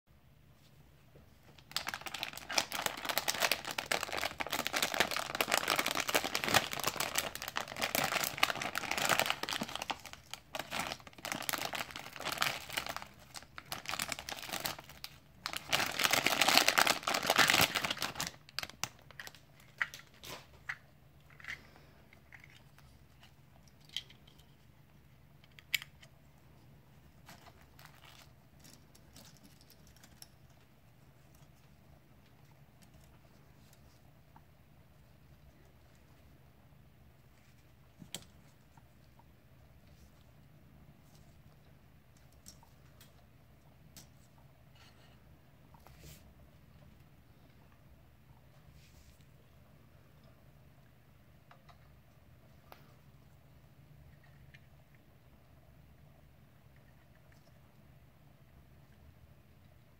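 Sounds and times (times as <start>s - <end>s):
plastic bag crinkling: 1.5s - 20.6s, 27.2s - 30.3s.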